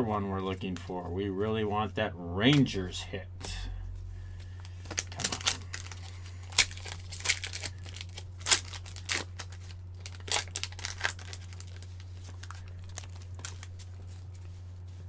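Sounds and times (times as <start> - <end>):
foil wrapper crinkling and tearing: 4.6 - 14.6.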